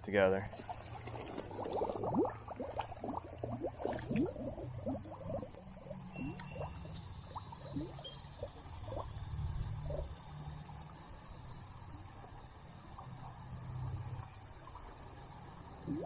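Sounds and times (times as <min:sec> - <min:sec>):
low steady hum: 0:00.0 - 0:16.0
water bubbling and gurgling: 0:00.2 - 0:16.0
air bubble blips: 0:00.5 - 0:09.2, 0:15.8 - 0:16.0.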